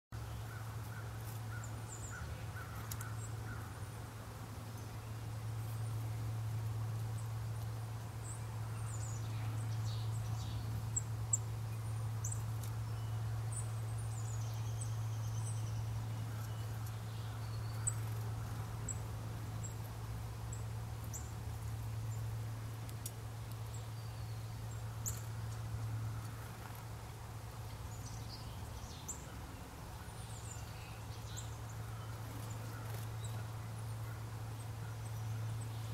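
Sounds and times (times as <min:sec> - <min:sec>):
bird chirps and calls: 0:08.2 - 0:19.0.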